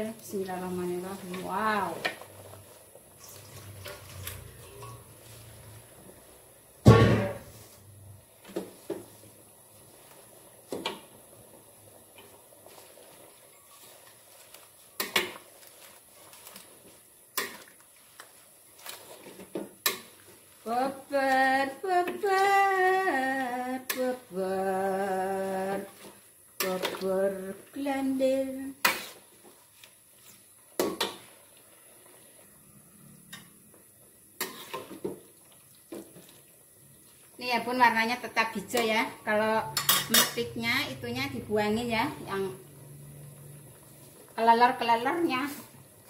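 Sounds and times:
metal spatula scraping a wok: 3.2s - 5.8s, 28.8s - 29.3s, 34.4s - 35.1s, 39.7s - 40.6s
metal spatula clanking on wok: 39.7s - 40.5s.

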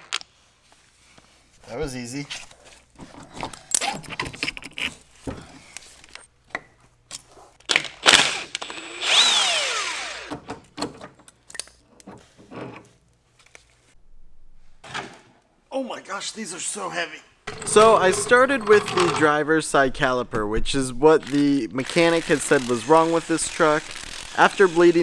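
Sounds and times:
clanks of handling tools: 17.5s - 19.4s
impact wrench bursts: 21.2s - 25.0s.

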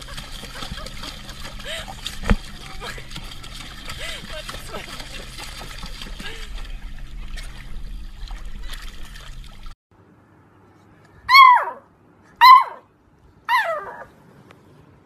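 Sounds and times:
water splashing: 0.0s - 9.8s
puppy yelping howls: 11.3s - 12.9s, 13.5s - 14.1s.

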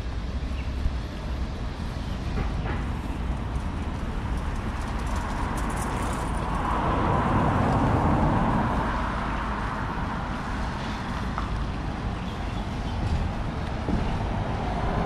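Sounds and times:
road traffic rumble: 0.0s - 15.0s
vehicle passing close by: 3.9s - 11.4s.

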